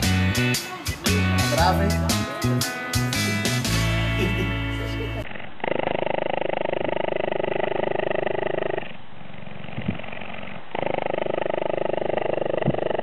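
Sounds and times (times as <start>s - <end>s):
cheetah purring: 4.4s - 13.0s.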